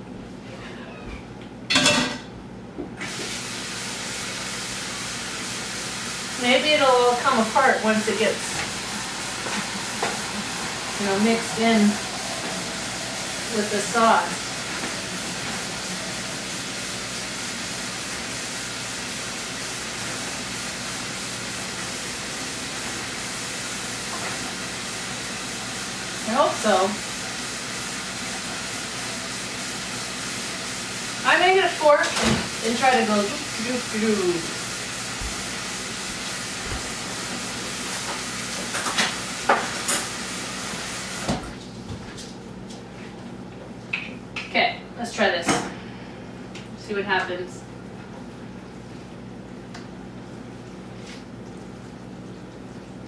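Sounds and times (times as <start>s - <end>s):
steady hiss from skillet: 3.2s - 24.0s.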